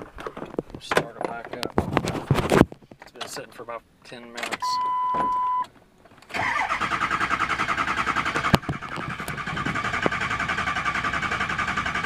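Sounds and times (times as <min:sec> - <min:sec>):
short steady beep: 0:04.6 - 0:05.7
diesel engine cranking: 0:06.2 - 0:12.0.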